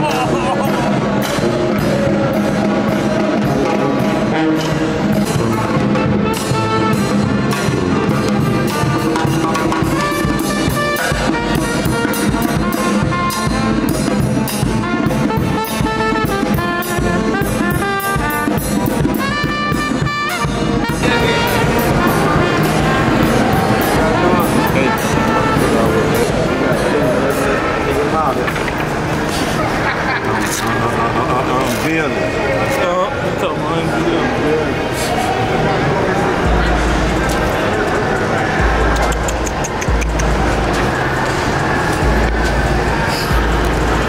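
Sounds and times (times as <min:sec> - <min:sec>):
snare drum steady beat: 0:00.0 - 0:27.2, 0:38.4 - 0:44.0
saxophone: 0:00.0 - 0:28.0
sousaphone: 0:19.2 - 0:28.4.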